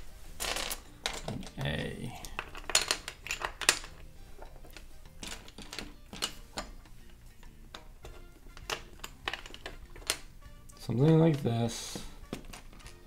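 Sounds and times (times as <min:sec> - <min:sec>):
plastic bricks clicking together: 0:00.4 - 0:11.5, 0:12.2 - 0:13.0.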